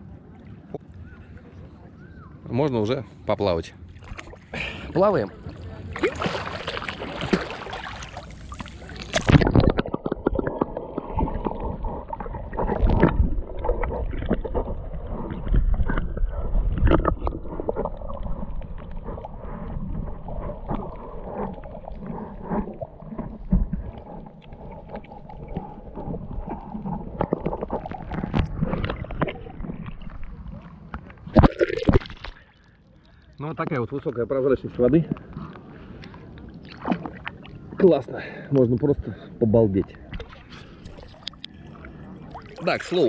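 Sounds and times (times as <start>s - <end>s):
underwater sloshing and gurgling: 3.1s - 43.0s
swimmer splashing: 4.0s - 30.5s.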